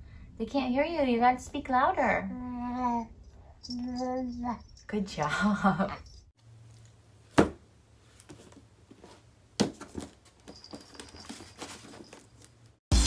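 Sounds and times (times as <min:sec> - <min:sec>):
toys tapping and rustling: 0:08.2 - 0:12.8.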